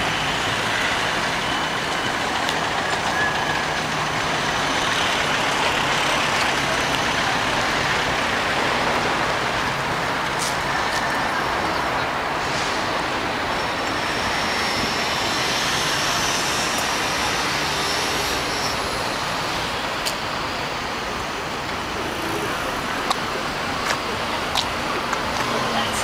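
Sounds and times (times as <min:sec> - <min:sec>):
city street traffic: 0:00.0 - 0:26.0.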